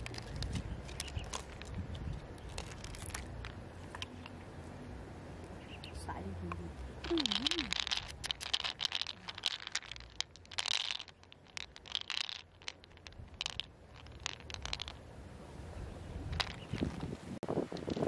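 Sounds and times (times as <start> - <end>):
pearls clicking in a shell: 0.0 - 4.4, 7.0 - 15.0, 16.3 - 17.0.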